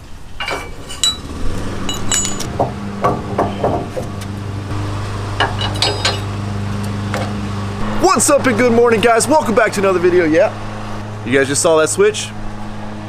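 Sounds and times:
steady low hum: 0.0s - 13.0s
steel hitch parts clinking: 0.3s - 4.4s, 5.4s - 7.4s.

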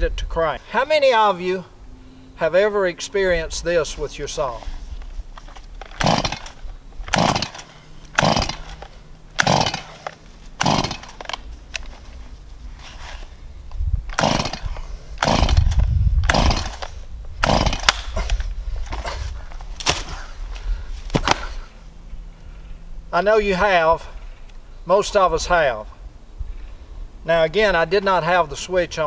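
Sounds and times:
chainsaw starter rope pulls: 4.3s - 13.4s, 14.1s - 21.7s.

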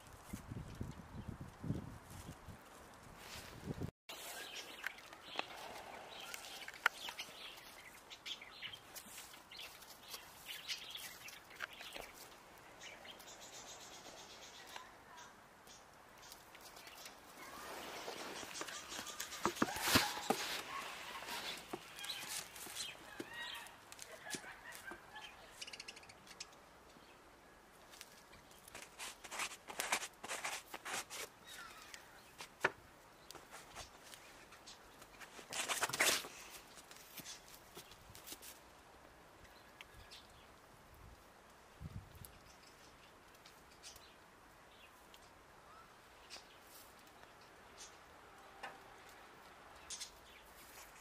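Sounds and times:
jacket rustling and scraping: 17.4s - 23.0s.

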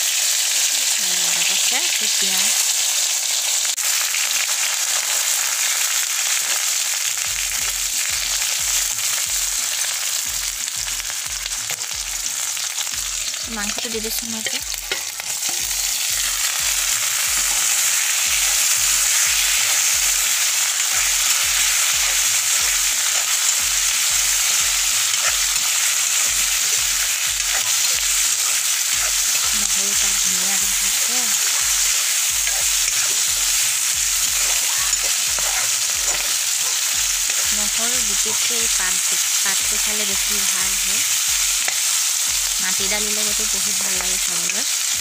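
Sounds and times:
chicken sizzling in oil: 0.0s - 45.0s
steel ladle stirring: 14.4s - 16.0s, 19.2s - 39.1s.

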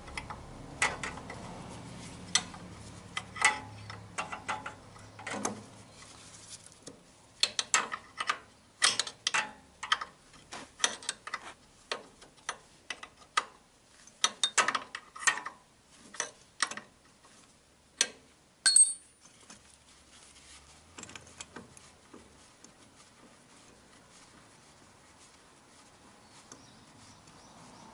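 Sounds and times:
metallic clicks and knocks: 0.0s - 1.4s, 2.3s - 5.6s, 7.4s - 10.2s, 10.8s - 16.9s
short ringing metal clink: 18.6s - 19.2s.

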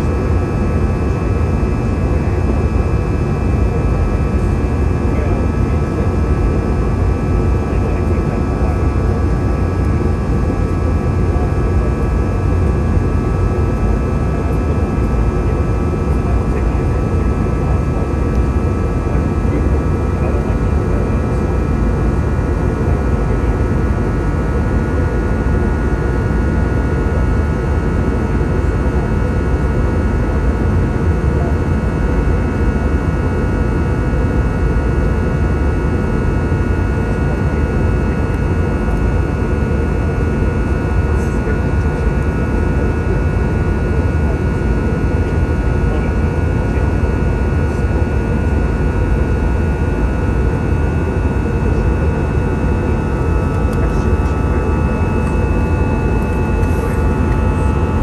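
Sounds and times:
jet cabin rumble: 0.0s - 33.0s, 36.7s - 58.0s
steady whining tones: 50.8s - 58.0s.

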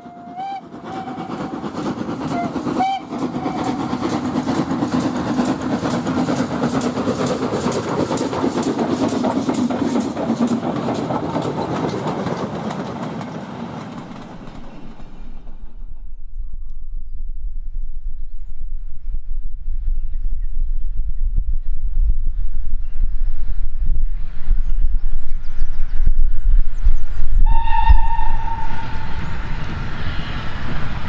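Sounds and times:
steam whistle blasts: 0.0s - 1.7s, 2.3s - 4.0s, 27.4s - 29.6s
steam locomotive exhaust beats: 0.0s - 16.4s, 18.4s - 31.0s
wheels clattering over rails: 0.7s - 15.7s.

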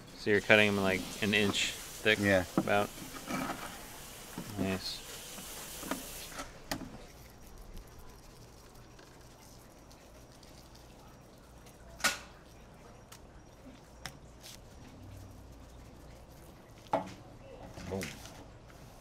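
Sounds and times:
faint low hum: 6.4s - 19.0s.

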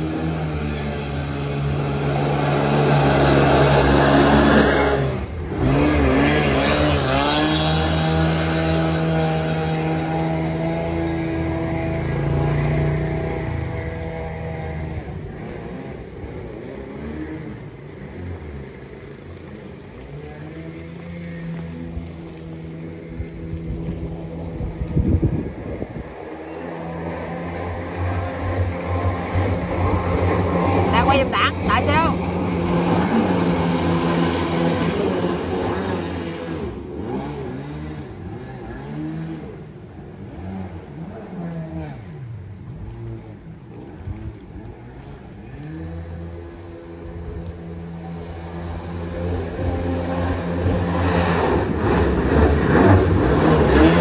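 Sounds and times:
jet boat engine running: 0.0s - 54.0s.

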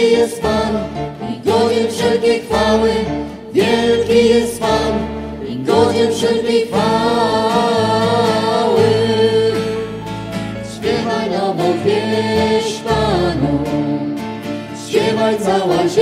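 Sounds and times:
choir singing: 0.0s - 16.0s.

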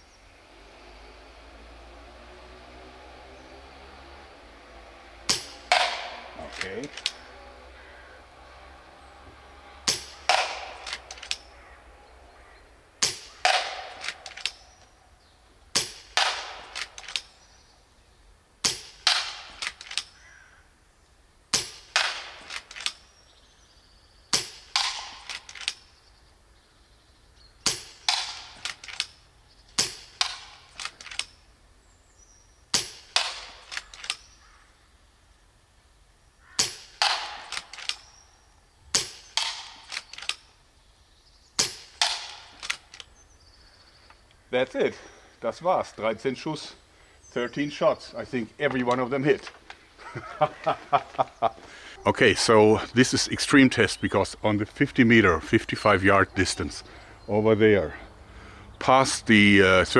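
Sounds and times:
air rifle shots: 5.3s - 7.3s, 9.8s - 11.8s, 13.0s - 15.0s, 15.7s - 17.4s, 18.6s - 20.2s, 21.5s - 23.2s, 24.3s - 25.9s, 27.6s - 29.2s, 29.8s - 31.4s, 32.7s - 34.4s, 36.6s - 38.2s, 38.9s - 40.5s, 41.6s - 43.1s
faint clicks: 10.8s - 11.8s, 39.4s - 40.5s.

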